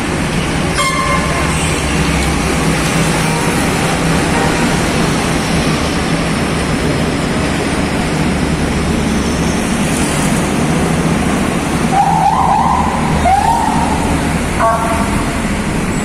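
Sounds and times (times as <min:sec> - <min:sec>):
diesel truck engine passing: 0:00.0 - 0:16.0
tyres rolling on wet road: 0:00.0 - 0:16.0
wavering siren wail: 0:11.9 - 0:15.4.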